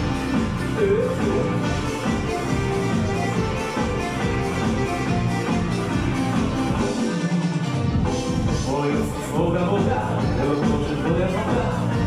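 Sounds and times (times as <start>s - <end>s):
electronic keyboard melody: 0.0s - 9.2s.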